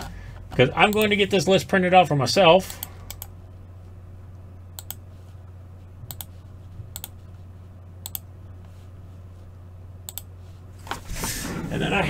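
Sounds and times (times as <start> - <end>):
low steady hum: 0.0 - 12.0
computer mouse clicks: 2.7 - 3.3, 4.8 - 5.0, 6.1 - 7.2, 8.0 - 8.3, 10.1 - 10.3.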